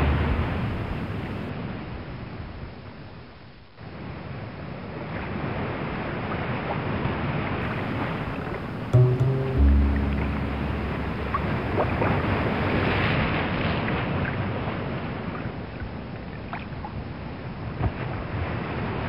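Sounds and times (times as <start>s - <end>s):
low musical notes: 7.7s - 12.8s.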